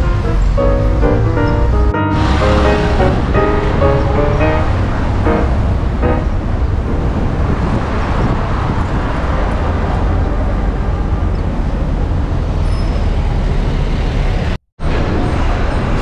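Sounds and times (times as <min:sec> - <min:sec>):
heavy low rumble: 0:00.0 - 0:12.4
city traffic noise: 0:00.0 - 0:16.0.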